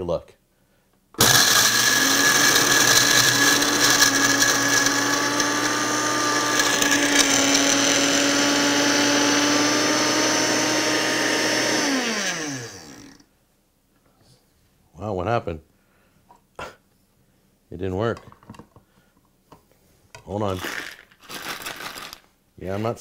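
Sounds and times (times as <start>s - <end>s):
blender motor whine: 1.2s - 13.2s
ice rattling: 20.4s - 22.3s.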